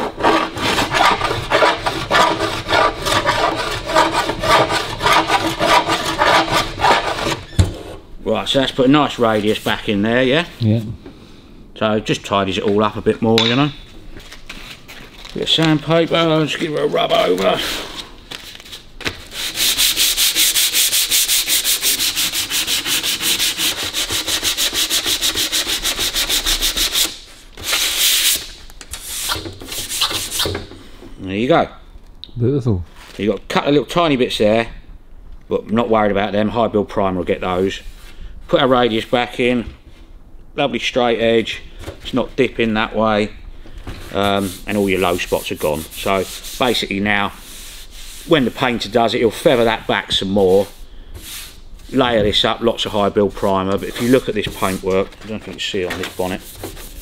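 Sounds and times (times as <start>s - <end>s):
file rasping on sheet metal: 0.0s - 7.5s, 19.5s - 27.2s
sandpaper rubbing on metal: 0.0s - 7.5s, 19.3s - 30.5s, 44.1s - 52.1s, 53.8s - 55.2s, 55.9s - 57.0s.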